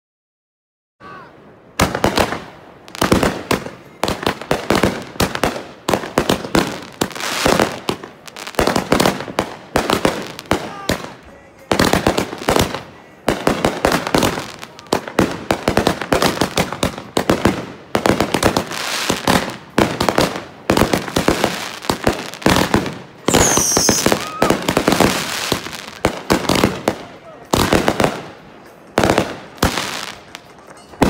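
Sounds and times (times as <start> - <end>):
fireworks bangs and crackling: 1.7 - 31.0
falling firework whistle: 23.2 - 24.8.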